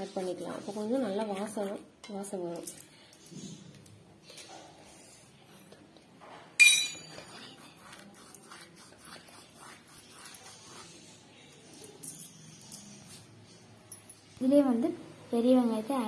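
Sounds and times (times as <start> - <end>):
hands mixing flour in a bowl: 0.0 - 5.8, 7.0 - 13.6
metallic clink of bowl: 6.6 - 7.1.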